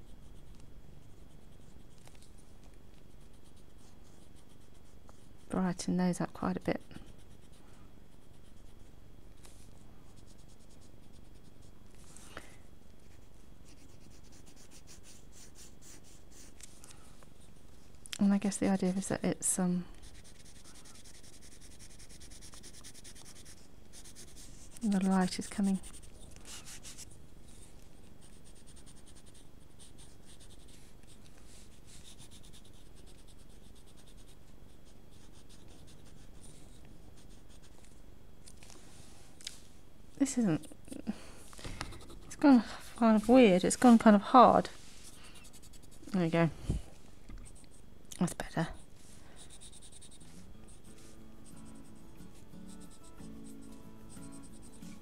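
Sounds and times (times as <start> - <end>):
pencil scratching on paper: 0.0 - 5.6, 6.5 - 12.0, 13.0 - 16.8, 20.0 - 37.9, 41.8 - 46.2, 48.4 - 55.0.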